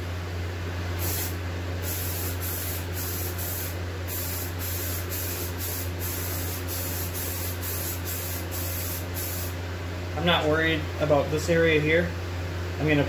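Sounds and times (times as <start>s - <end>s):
aerosol spray can hissing: 1.0s - 9.5s.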